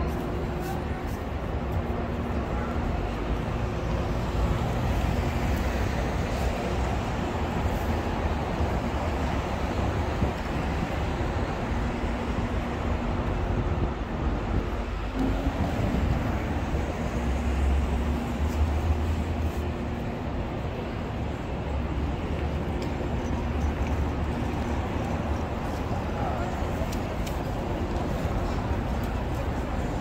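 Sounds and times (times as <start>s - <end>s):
vehicles rumbling past: 2.0s - 30.0s.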